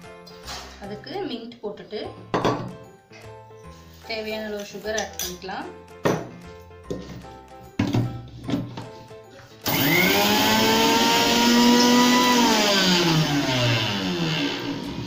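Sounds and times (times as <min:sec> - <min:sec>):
mixer grinder motor whine: 0:09.6 - 0:15.0.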